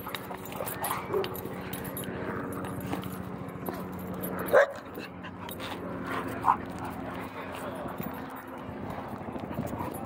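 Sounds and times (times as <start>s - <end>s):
dog barking: 4.5s - 4.8s.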